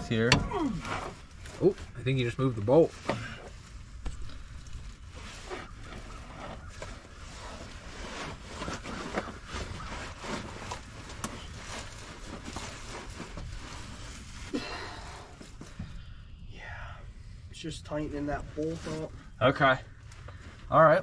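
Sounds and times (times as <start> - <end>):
steady low rumble: 10.9 - 21.0.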